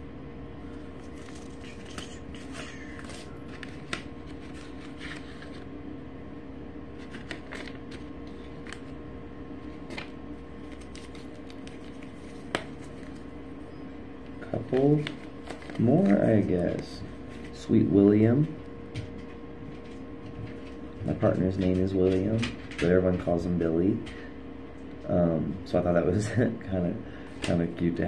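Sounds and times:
steady low hum: 0:00.0 - 0:28.0
paper packets rustling: 0:00.6 - 0:05.8, 0:06.9 - 0:18.3.

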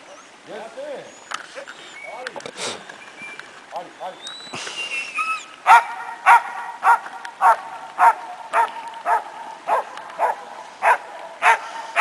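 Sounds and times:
dog barking: 0:05.6 - 0:12.0.

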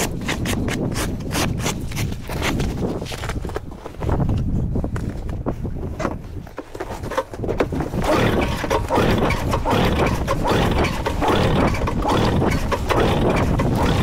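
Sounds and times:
snowmobile engine running: 0:07.8 - 0:14.0.

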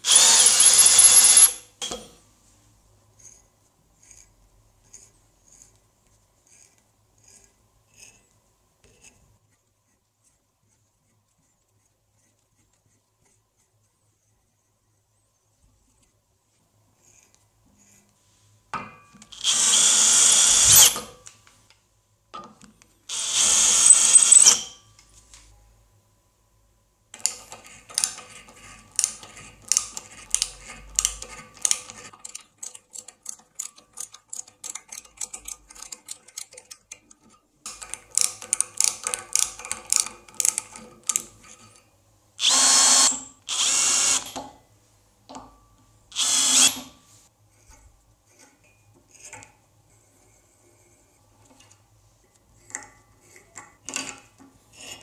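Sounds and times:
power tool bursts: 0:00.0 - 0:01.7, 0:19.3 - 0:21.1, 0:23.1 - 0:24.8, 0:42.4 - 0:44.4, 0:46.2 - 0:46.9.

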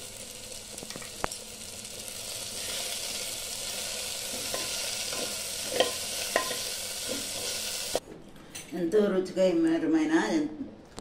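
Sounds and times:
curry sizzling in a pan: 0:00.0 - 0:08.0
spoon clinking against pan: 0:04.5 - 0:06.7.

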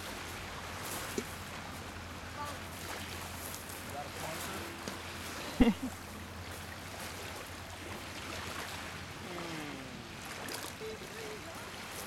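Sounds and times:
small waves on pebble shore: 0:06.4 - 0:12.0.

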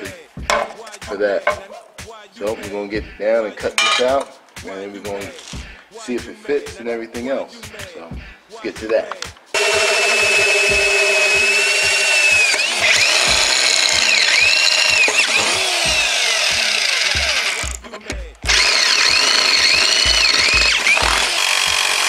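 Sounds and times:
drill press boring metal: 0:09.6 - 0:22.0
jigsaw cutting metal: 0:09.6 - 0:22.0.

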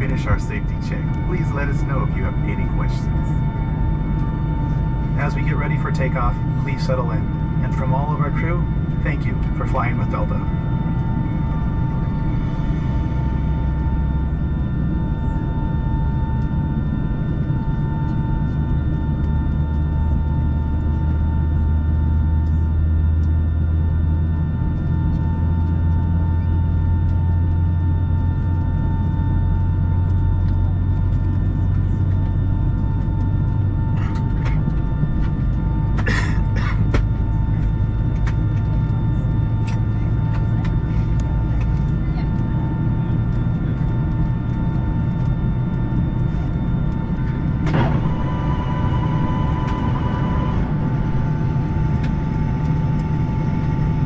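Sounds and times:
airplane cabin rumble: 0:00.0 - 0:54.0
jet engines whining: 0:00.0 - 0:54.0
person coughing: 0:36.0 - 0:37.0.

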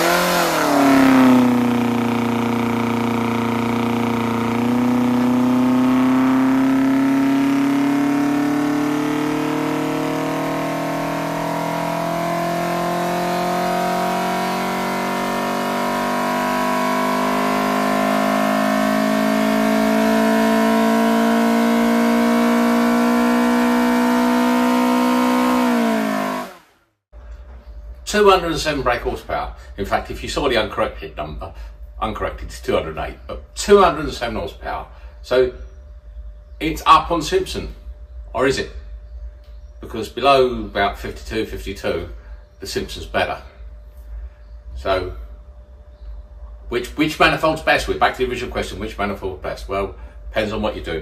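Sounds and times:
race engine at full throttle: 0:00.0 - 0:26.8.

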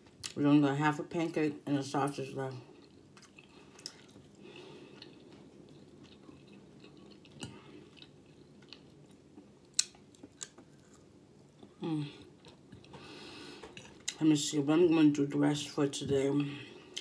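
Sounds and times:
soft chewing: 0:02.5 - 0:14.2.

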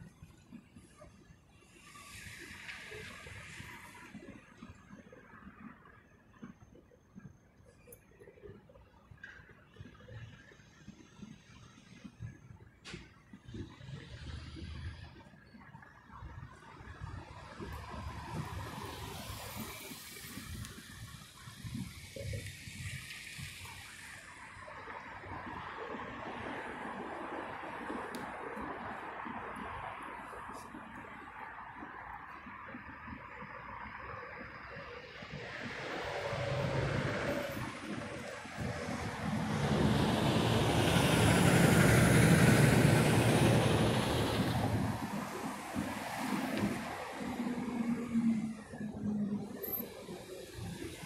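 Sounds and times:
car tyres hissing on road: 0:00.8 - 0:04.9, 0:16.0 - 0:51.0
truck driving past: 0:35.2 - 0:48.8.

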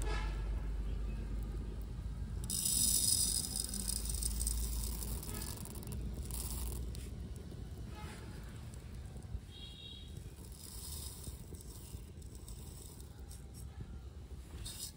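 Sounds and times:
lentils rattling into clay pot: 0:02.3 - 0:13.7, 0:14.5 - 0:14.9.

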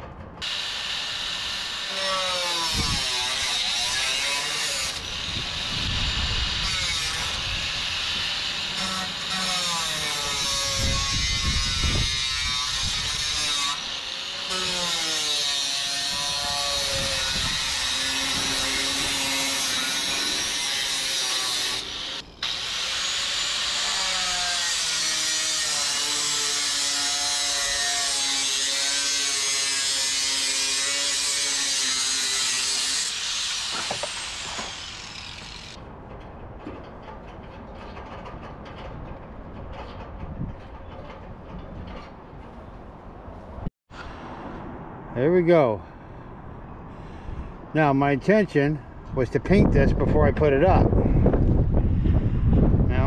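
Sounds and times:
wind gust on microphone: 0:05.0 - 0:08.4, 0:10.3 - 0:13.4, 0:16.1 - 0:20.7, 0:48.9 - 0:53.0.

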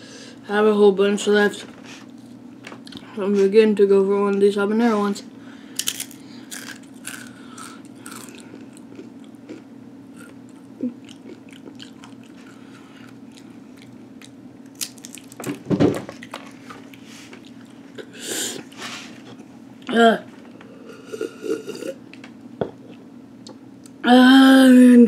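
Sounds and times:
crunching tortilla chips: 0:05.8 - 0:09.6, 0:11.1 - 0:15.6.

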